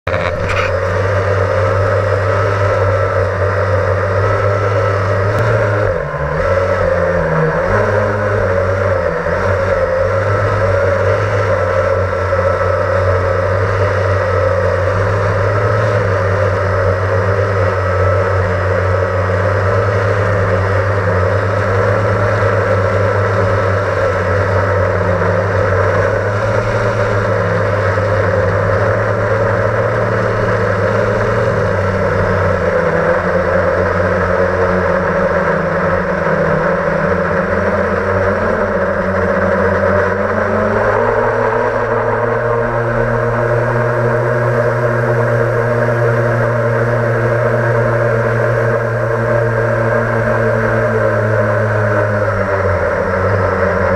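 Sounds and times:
quadcopter motors humming: 0.0 - 53.9.

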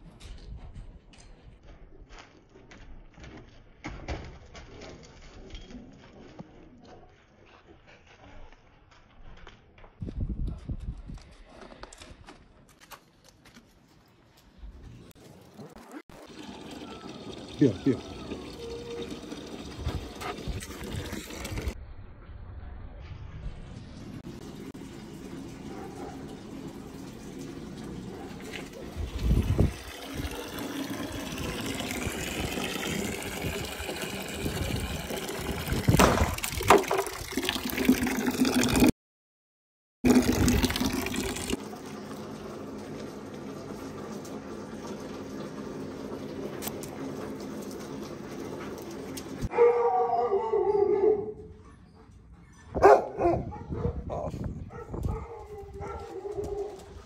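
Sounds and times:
water pouring into plastic bowl: 16.2 - 21.8, 24.4 - 38.9, 40.1 - 49.4
dog yelping: 49.5 - 51.7, 52.6 - 56.8.

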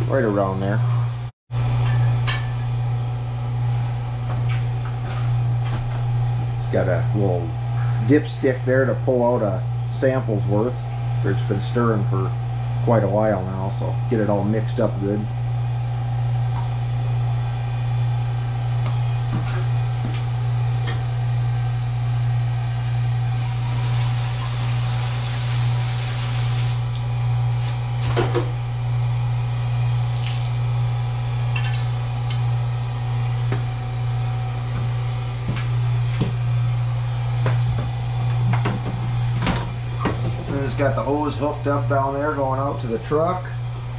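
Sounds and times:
low motor hum: 0.0 - 43.9
loud hiss: 23.3 - 26.9.

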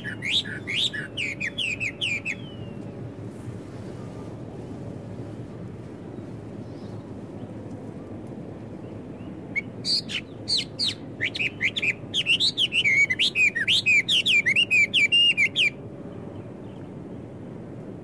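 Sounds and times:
blackbird singing: 0.0 - 2.9, 8.8 - 16.9
low background rumble: 0.0 - 18.0.

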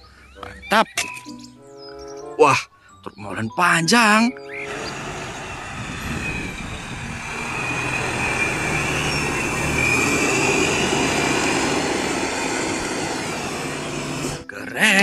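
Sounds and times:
thin high whine: 4.3 - 14.5
truck diesel engine rumble: 4.3 - 14.5.

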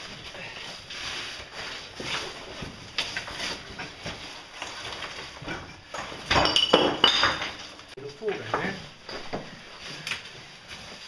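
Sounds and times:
rocks knocking and clinking: 5.4 - 7.9.

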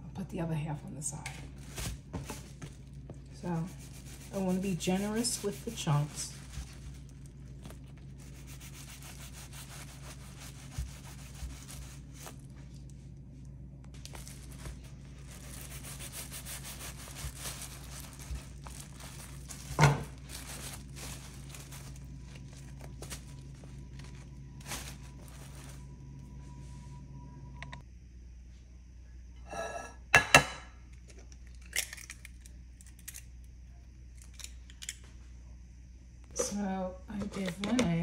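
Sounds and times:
plastic bag crinkling: 1.5 - 13.0, 14.0 - 26.0
knife sawing through bread crust: 8.2 - 12.1.

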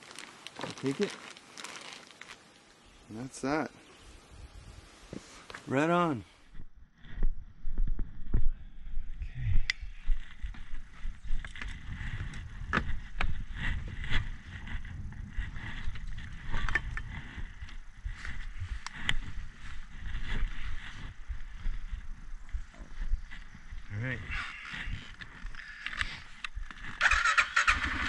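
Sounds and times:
atv engine rumble: 6.5 - 28.0.

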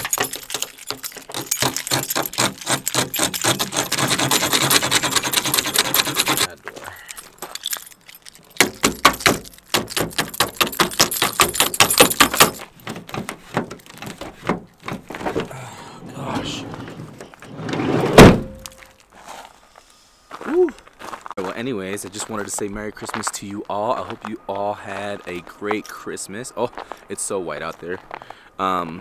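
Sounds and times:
key scraping in door lock: 0.0 - 6.5, 7.1 - 14.9
keys jangling: 0.0 - 13.1.

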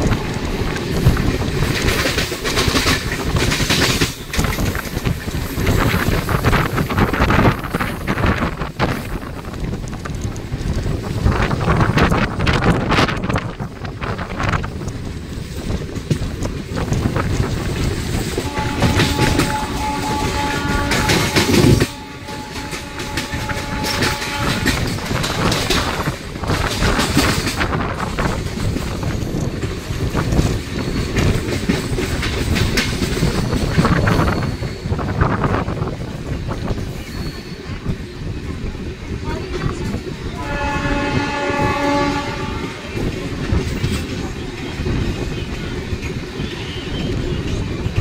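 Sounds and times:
train wheels clattering over rail joints: 0.0 - 38.8, 39.4 - 48.0
freight train passing: 0.0 - 48.0
train horn: 18.4 - 25.9, 39.2 - 43.2.

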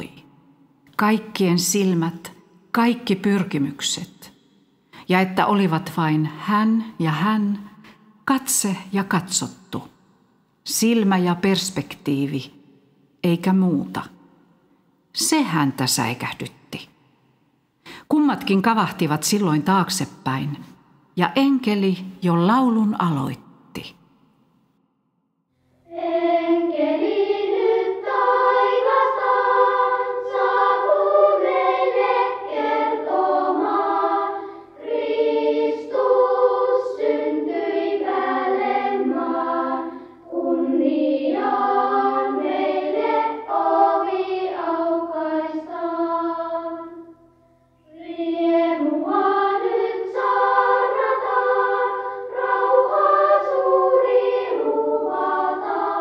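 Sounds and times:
choir singing: 25.8 - 47.2, 47.8 - 56.0.

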